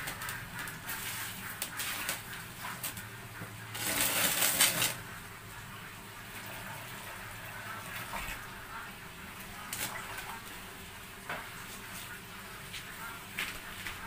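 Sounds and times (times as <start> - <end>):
hands squeezing damp mash: 0.0 - 5.1
water poured onto mash: 3.6 - 5.0.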